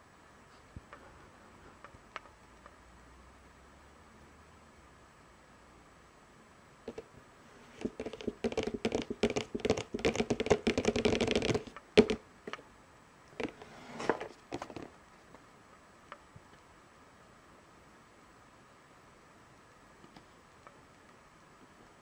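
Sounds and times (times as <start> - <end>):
cardboard box taps and clicks: 7.8 - 12.6.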